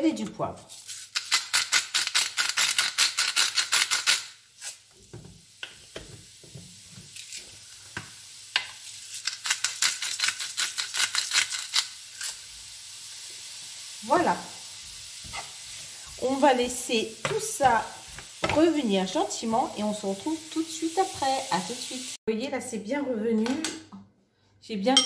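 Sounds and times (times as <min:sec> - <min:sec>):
onions sizzling in a pan: 0:00.7 - 0:22.2.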